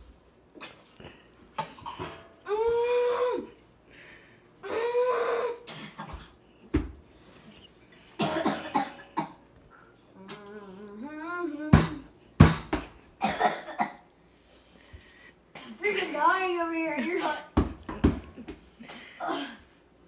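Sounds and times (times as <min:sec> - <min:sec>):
boy coughing and gagging: 0:01.6 - 0:02.2, 0:05.2 - 0:06.4, 0:08.2 - 0:09.4, 0:13.2 - 0:14.1
boy groaning: 0:02.4 - 0:03.6, 0:04.6 - 0:05.7.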